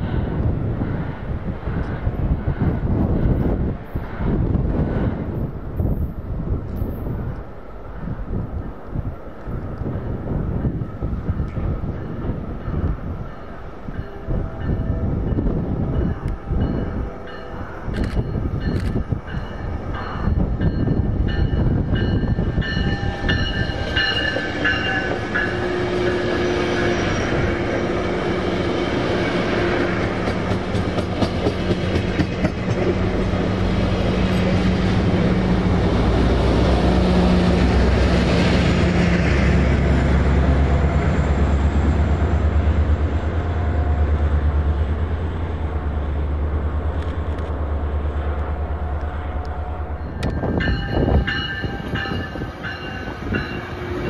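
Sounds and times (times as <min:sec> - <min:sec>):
diesel locomotive engine rumble: 0:00.0 - 0:54.0
high ringing tones: 0:13.4 - 0:27.2, 0:49.1 - 0:54.0
train wheels clacking over rail joints: 0:29.8 - 0:33.4.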